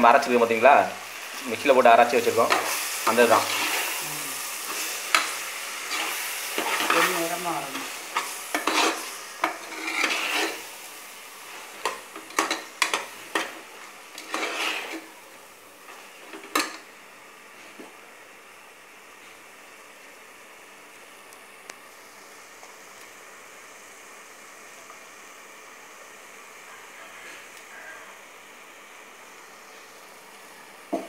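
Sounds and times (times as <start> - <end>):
frying sizzle: 0.0 - 31.0
ladle scraping a pot: 8.2 - 10.6, 12.4 - 15.0.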